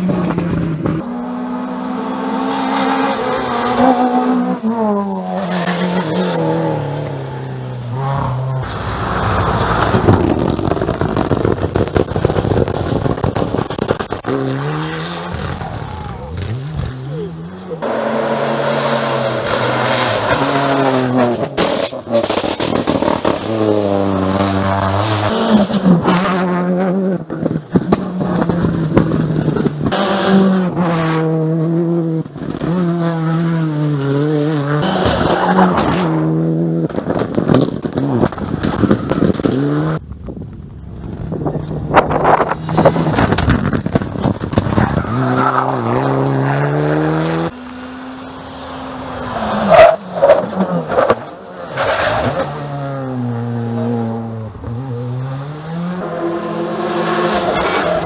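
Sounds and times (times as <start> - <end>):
rally car engines revving: 0.0 - 58.0
exhaust cracks: 8.5 - 14.5, 36.8 - 45.9.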